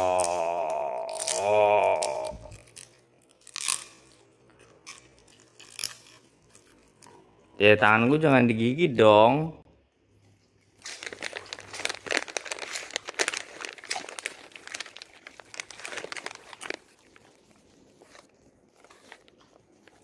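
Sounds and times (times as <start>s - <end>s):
dog crunching a treat: 1.1s - 7.3s, 10.5s - 20.0s.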